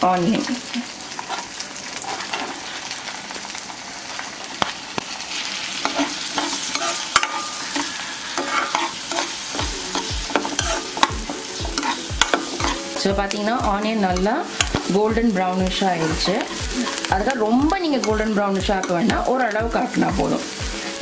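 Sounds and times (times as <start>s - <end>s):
onion sizzling in butter: 0.0s - 21.0s
steel spoon scraping pan: 1.1s - 2.7s, 5.8s - 15.0s.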